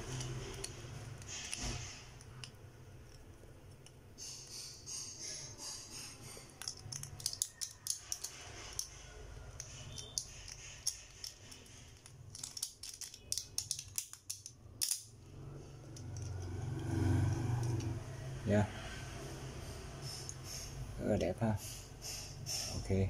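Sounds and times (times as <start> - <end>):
plastic parts snapping clicks: 6.6 - 8.9, 12.0 - 15.1.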